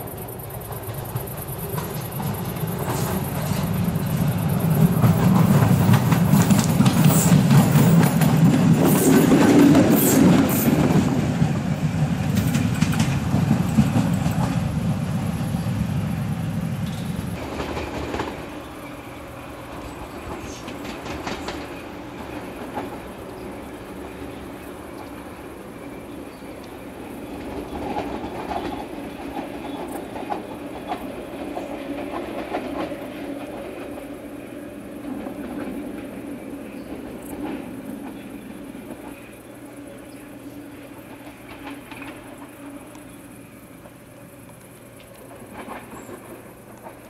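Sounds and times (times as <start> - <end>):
train rumble: 0.0 - 47.0
wheels clattering over rail joints: 0.7 - 15.8, 40.8 - 42.9, 44.9 - 47.0.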